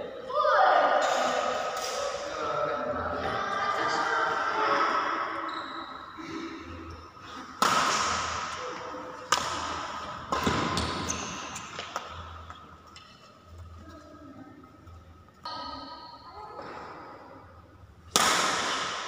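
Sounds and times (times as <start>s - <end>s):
rackets hitting shuttlecock: 7.6s - 12.2s, 18.1s - 19.0s.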